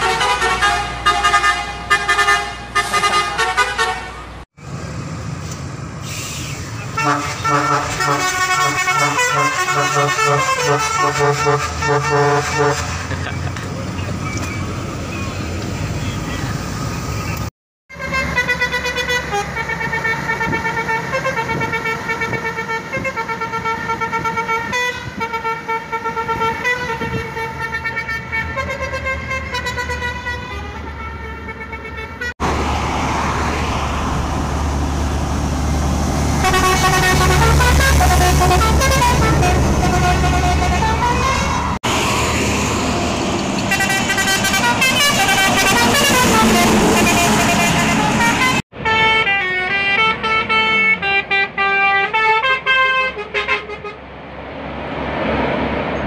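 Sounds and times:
lorry diesel engine rumbling: 0.0s - 56.0s
lorry musical horns playing tunes: 7.0s - 13.1s, 17.9s - 32.3s, 36.4s - 41.8s, 43.7s - 54.0s.

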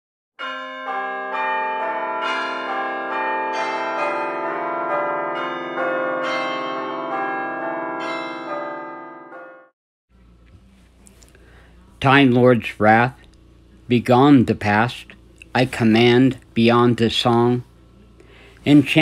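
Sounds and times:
bell-like chimes: 0.4s - 9.7s.

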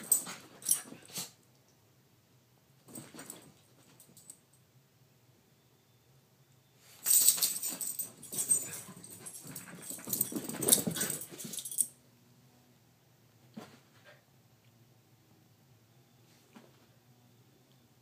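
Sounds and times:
dogs scuffling: 7.0s - 11.9s
dogs play growling: 7.8s - 11.8s.

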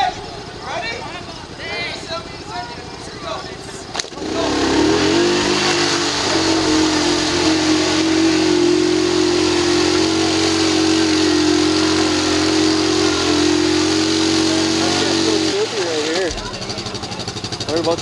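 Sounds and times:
atv engine at high revs: 3.9s - 18.0s
wheels churning through mud: 3.9s - 18.0s.

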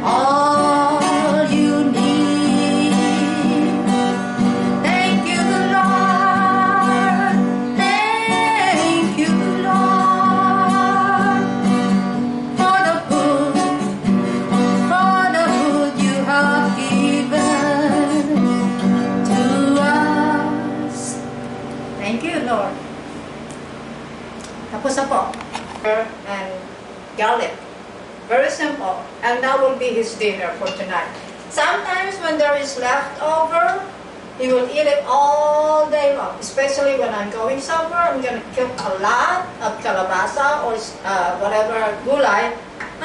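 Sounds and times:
woman singing: 0.0s - 11.9s, 12.6s - 14.0s, 14.8s - 21.3s, 34.9s - 36.0s
acoustic guitar strumming: 0.0s - 24.7s.

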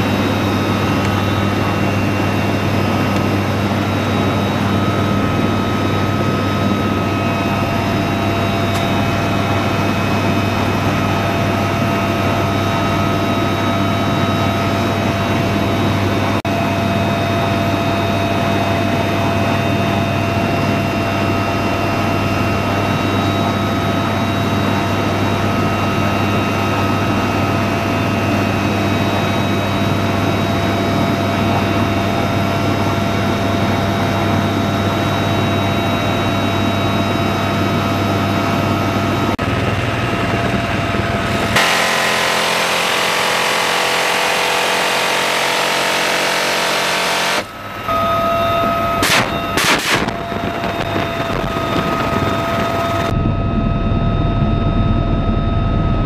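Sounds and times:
helicopter engines and rotor drone: 0.0s - 56.0s
high transmission whine: 0.0s - 56.0s
sharp cracks: 49.0s - 52.8s.

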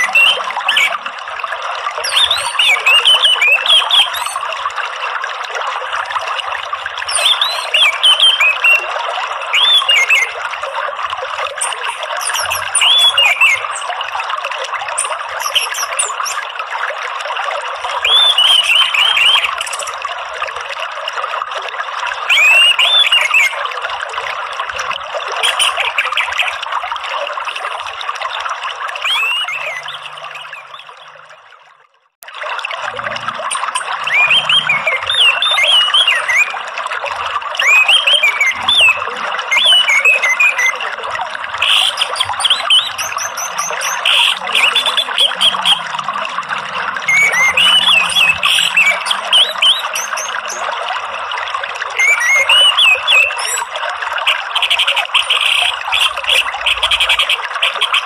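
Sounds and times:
thrush singing whistled phrases: 0.0s - 1.1s, 1.9s - 4.6s, 6.9s - 14.0s, 14.8s - 16.6s, 18.0s - 20.0s, 22.2s - 23.8s, 25.4s - 26.7s, 29.0s - 31.3s, 33.5s - 36.6s, 37.6s - 50.7s, 51.9s - 58.0s
flowing water: 0.0s - 58.0s.

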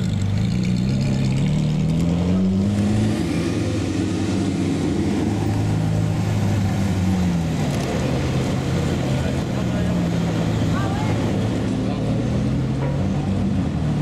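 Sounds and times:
sports car engine: 0.0s - 14.0s.

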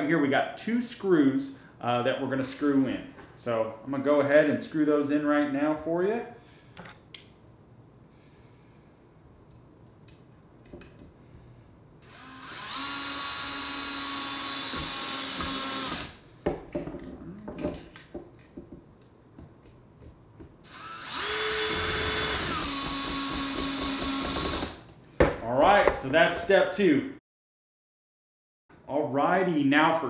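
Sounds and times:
drill driving screws into wood: 12.0s - 16.2s, 20.6s - 24.9s.

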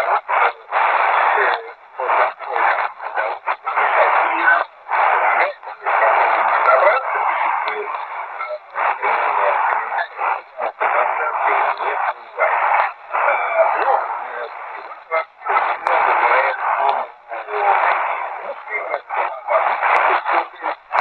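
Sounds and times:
person speaking over radio: 0.0s - 21.0s.

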